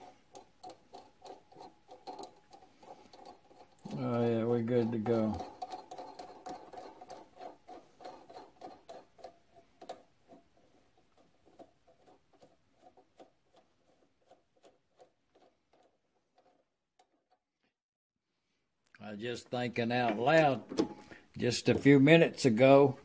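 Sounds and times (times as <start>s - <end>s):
nut spinning on metal thread: 0.0s - 17.4s.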